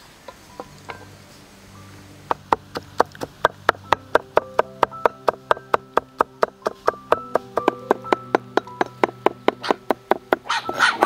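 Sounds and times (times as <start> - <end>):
cleaver chopping on wooden block: 2.3 - 11.0.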